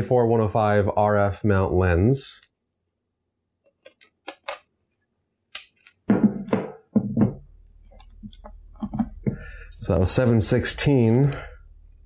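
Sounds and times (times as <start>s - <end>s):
knocks on wooden desk: 6.1s - 7.4s.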